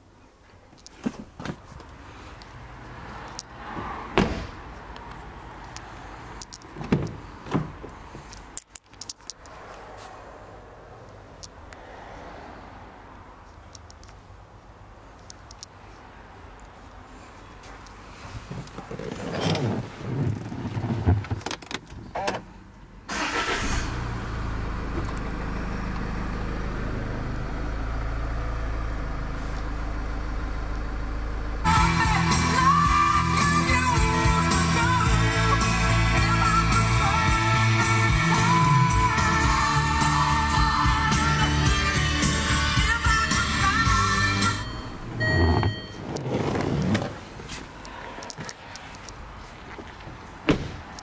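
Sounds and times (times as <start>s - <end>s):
car door thumps: 4.1s - 4.7s, 6.8s - 7.9s, 50.4s - 50.9s
car engine starting and idling: 21.5s - 48.5s.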